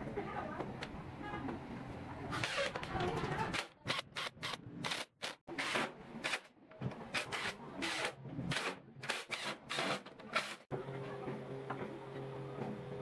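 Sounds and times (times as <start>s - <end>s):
cordless drill driving screws: 7.2s - 10.6s.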